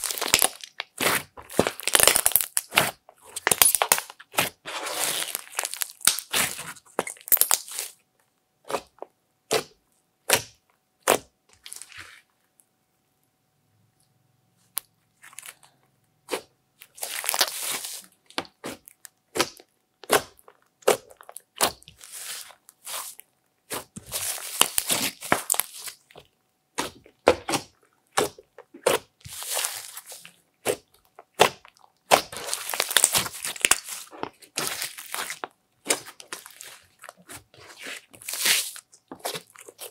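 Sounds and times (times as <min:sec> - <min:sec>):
slime popping and crackling: 0:00.0 - 0:08.0, 0:16.3 - 0:26.2, 0:26.8 - 0:39.9.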